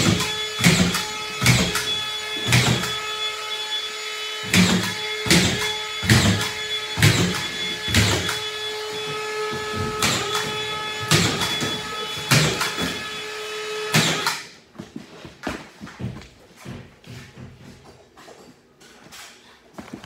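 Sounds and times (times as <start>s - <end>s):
screw gun motor whine: 0.0s - 13.2s.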